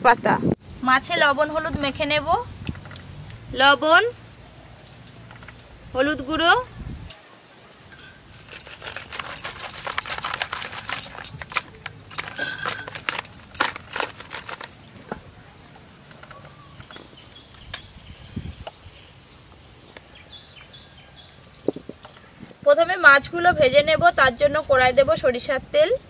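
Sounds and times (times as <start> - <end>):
fish rattling in basket: 7.9 - 14.9.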